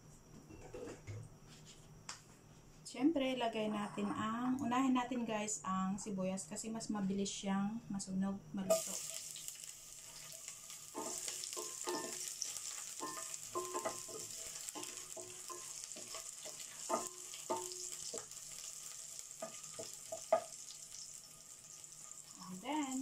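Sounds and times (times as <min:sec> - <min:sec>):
onions sizzling in oil: 0:08.7 - 0:23.0.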